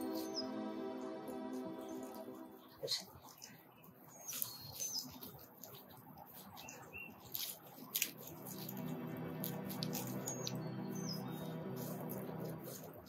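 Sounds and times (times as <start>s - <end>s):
bird chirping: 0.0s - 2.9s, 6.4s - 7.4s, 8.2s - 12.9s
hands rustling soil: 4.2s - 13.0s.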